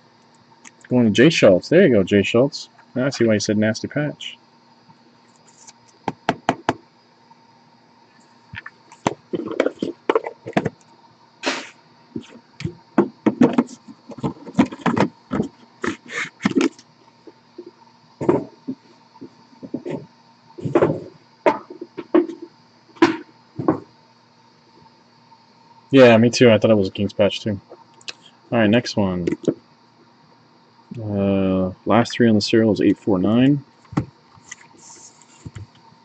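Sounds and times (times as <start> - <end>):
cardboard and plastic boxes knocking: 6.1 - 6.8, 13.0 - 15.5.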